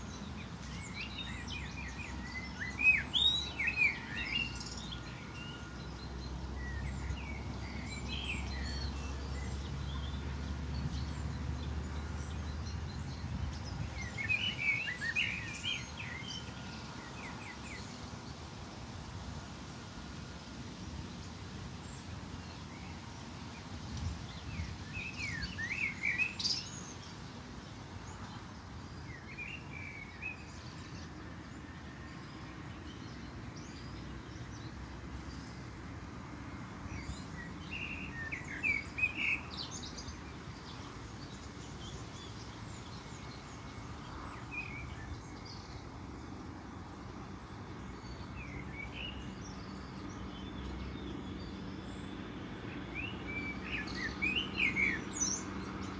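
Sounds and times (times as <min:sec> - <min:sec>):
small birds chirping: 0:00.0 - 0:18.9, 0:20.8 - 0:55.9.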